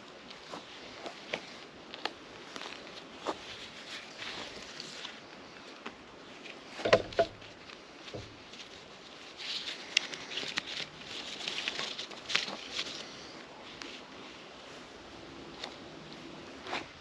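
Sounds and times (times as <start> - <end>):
strap rustling against bark: 0.0 - 17.0
sharp knocks: 6.8 - 7.4.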